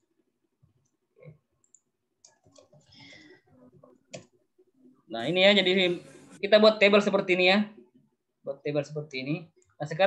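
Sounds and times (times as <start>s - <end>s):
computer mouse clicks: 1.6s - 2.9s, 4.1s - 4.3s.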